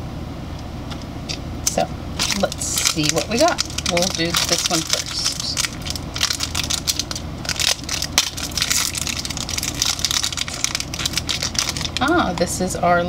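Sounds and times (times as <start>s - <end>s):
foil bag crinkling: 2.2s - 12.4s.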